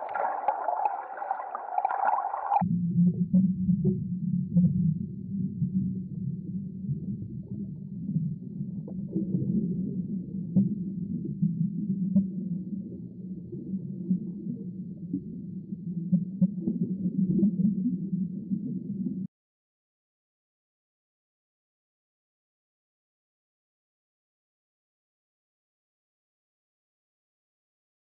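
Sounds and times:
underwater water churning: 0.0s - 2.6s.

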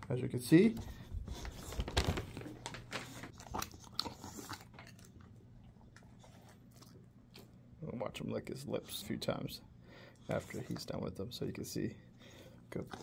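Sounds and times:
dog crunching and chewing treat: 1.3s - 7.6s.

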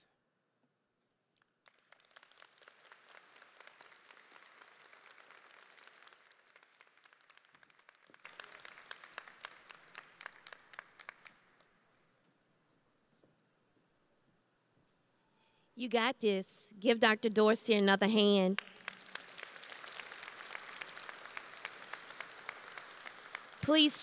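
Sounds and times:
faint audience applauding: 1.4s - 11.9s, 18.6s - 24.0s.

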